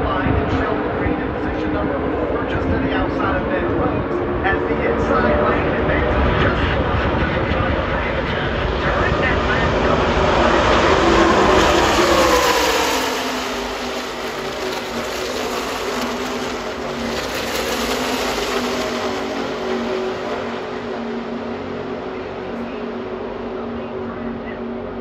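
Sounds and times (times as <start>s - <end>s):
distant engine drone: 0.0s - 25.0s
race trucks passing at speed: 4.6s - 22.5s.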